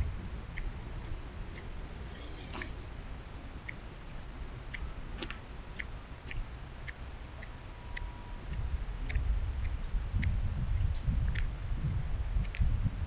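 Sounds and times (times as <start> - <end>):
low rumble on microphone: 0.0 - 13.0
light clicking footsteps: 3.5 - 13.0.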